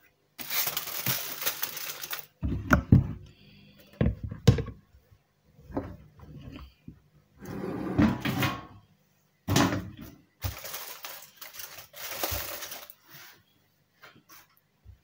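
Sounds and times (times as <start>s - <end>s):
rustling of foil and food: 0.4s - 2.4s, 10.4s - 13.4s.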